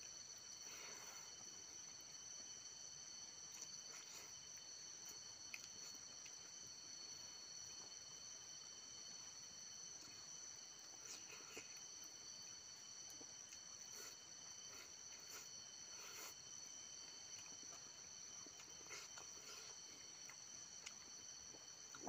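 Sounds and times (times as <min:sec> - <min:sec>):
chewing and mouth sounds: 0:03.3 - 0:08.0, 0:10.0 - 0:22.0.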